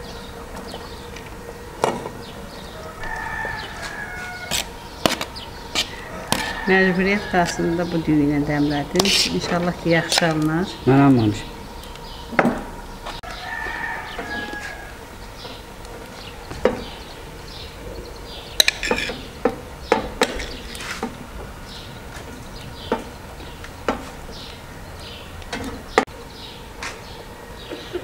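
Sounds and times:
small birds chirping: 0.0s - 28.0s
rooster crowing: 1.4s - 8.9s, 12.5s - 18.3s.

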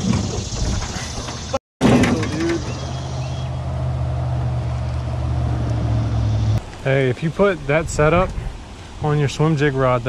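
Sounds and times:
boat motor humming: 1.4s - 6.6s.

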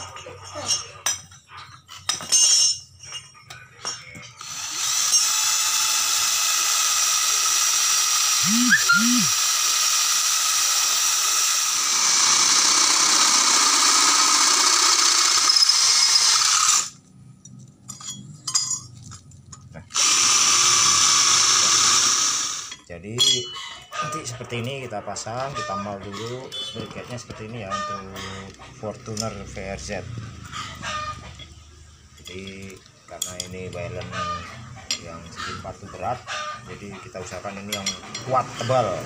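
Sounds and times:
drill grinding through steel: 4.4s - 17.0s, 19.9s - 22.8s.

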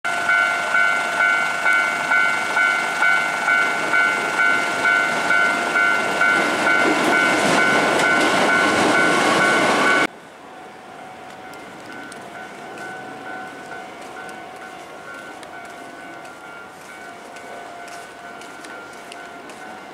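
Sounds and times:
level crossing warning bell: 0.1s - 19.9s
train rumbling on rails: 0.1s - 19.9s.

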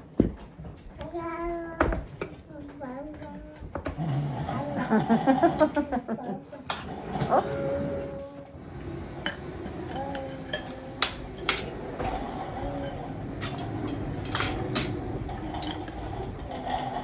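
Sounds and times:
cutlery clinking on plates: 12.8s - 16.0s.

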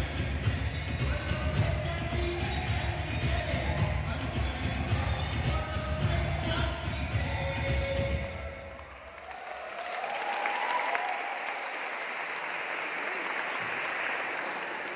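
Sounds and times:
dance music with bass beat: 0.0s - 8.4s
audience applause: 8.7s - 14.9s.

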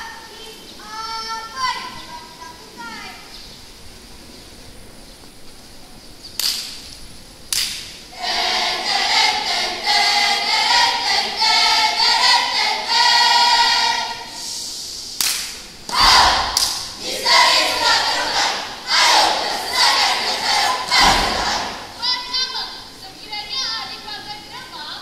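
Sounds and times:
choir singing: 8.1s - 14.8s, 15.9s - 22.0s.

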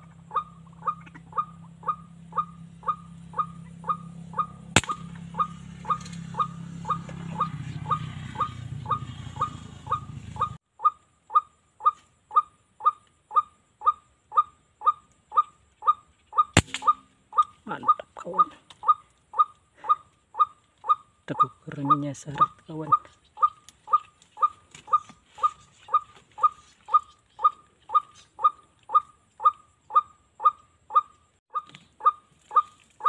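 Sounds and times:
waterhen calling: 0.0s - 33.0s
air rifle shot: 4.8s - 5.1s, 16.6s - 17.0s.

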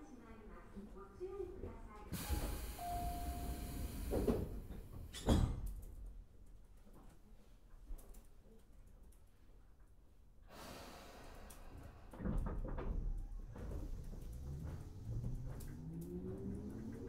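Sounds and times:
hiss: 2.2s - 4.5s, 10.5s - 12.3s
train doors thudding: 2.2s - 5.7s.

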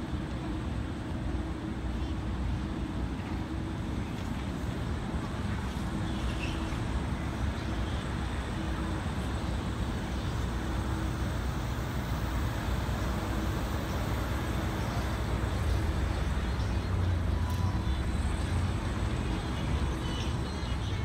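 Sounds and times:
cars passing on street: 0.0s - 21.0s.

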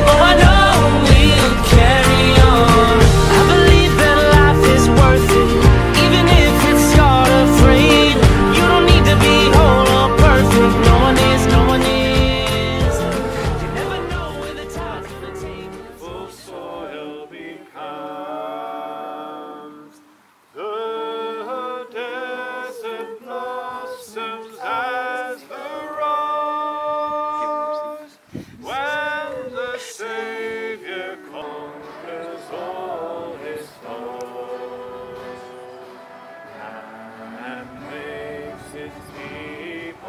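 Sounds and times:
bass-heavy backing music: 0.0s - 16.1s
voices singing unaccompanied: 0.0s - 40.0s.

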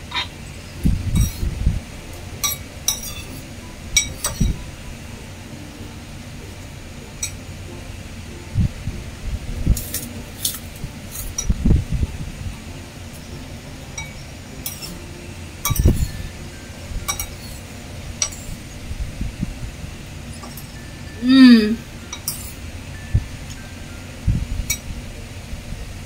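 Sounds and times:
spoon clinking against bowl: 2.4s - 3.4s, 14.0s - 15.0s, 15.6s - 16.2s, 17.0s - 17.6s, 18.2s - 18.5s, 22.1s - 22.6s.

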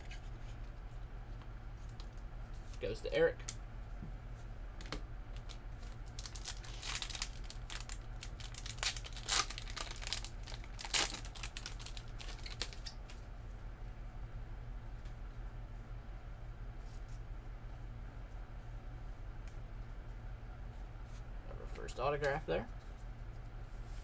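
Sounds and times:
foil wrapper crinkling and tearing: 5.4s - 13.2s.

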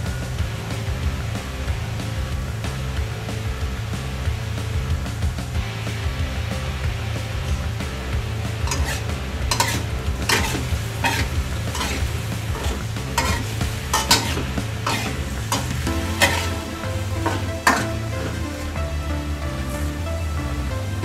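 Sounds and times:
stir-fry sizzling: 8.0s - 21.0s
metal spatula scraping wok: 8.7s - 18.8s.

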